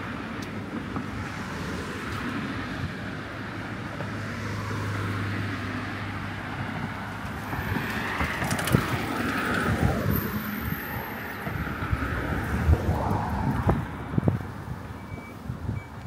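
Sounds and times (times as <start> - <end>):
road traffic passing: 0.0 - 16.0
wind buffeting microphone: 6.8 - 16.0.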